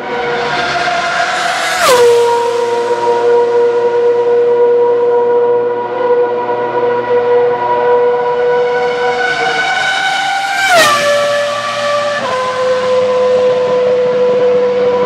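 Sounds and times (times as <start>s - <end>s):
racing car screaming past: 0.0s - 4.9s
racing car engine high revving: 0.0s - 15.0s.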